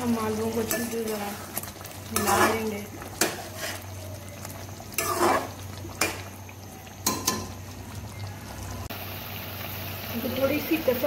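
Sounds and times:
metal spoon stirring in pot: 0:00.0 - 0:06.3
low sizzle: 0:00.0 - 0:11.0.

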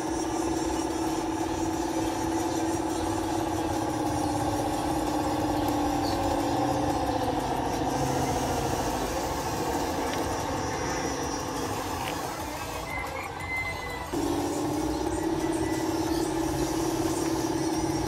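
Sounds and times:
toy bulldozer motors whining: 0:00.0 - 0:18.0.

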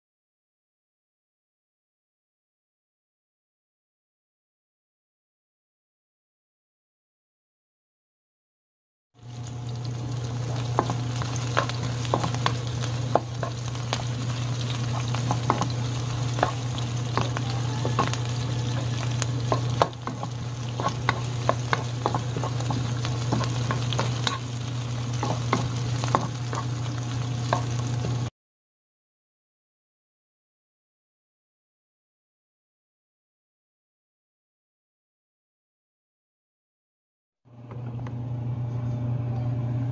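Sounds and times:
meat sizzling in a frying pan: 0:09.2 - 0:28.3
steady low hum: 0:09.2 - 0:28.3
spatula scraping a pan: 0:10.5 - 0:28.2.

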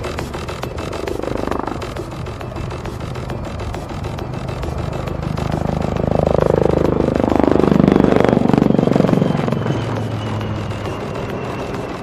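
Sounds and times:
helicopter flying past: 0:00.0 - 0:12.0.

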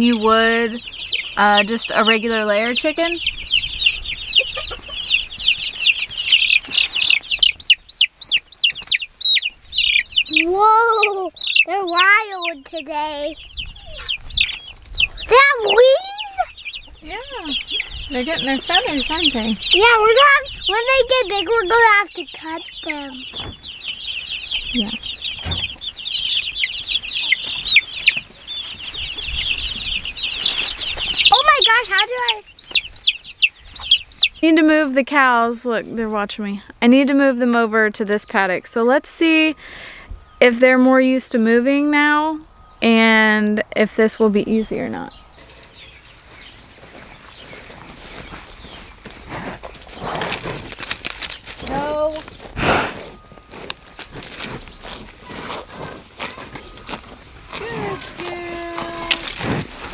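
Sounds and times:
chicks peeping chorus: 0:00.0 - 0:59.9
loud single chick peeps: 0:03.2 - 0:11.7, 0:32.6 - 0:34.4.

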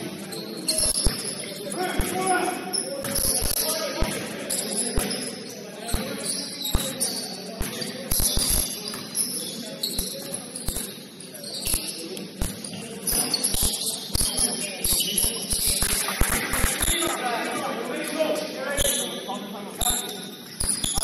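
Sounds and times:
sneakers squeaking on floor: 0:00.0 - 0:17.2, 0:18.0 - 0:21.0.

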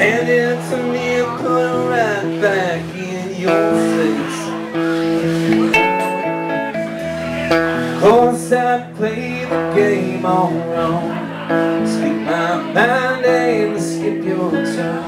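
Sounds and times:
man singing lead vocal: 0:00.0 - 0:04.8, 0:06.9 - 0:15.0
electric bass guitar: 0:00.0 - 0:15.0
electric guitars: 0:00.0 - 0:15.0
sustained chords: 0:04.6 - 0:08.4.

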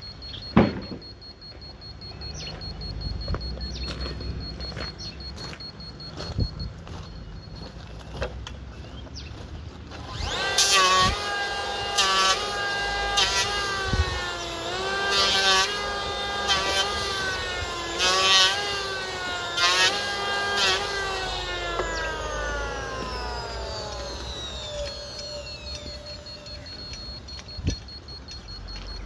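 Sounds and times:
small engine at high revs: 0:09.9 - 0:29.0
sharp rasping bursts: 0:10.0 - 0:29.0.

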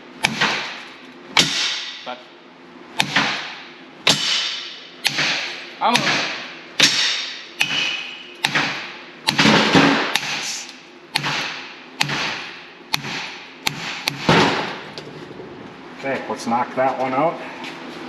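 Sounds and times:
hammer striking metal plate: 0:00.2 - 0:02.1, 0:03.0 - 0:14.8.

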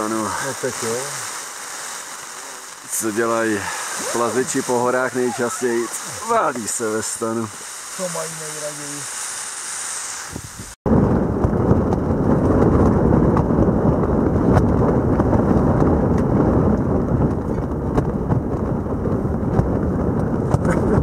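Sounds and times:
strong wind buffeting a tent: 0:10.2 - 0:21.0.

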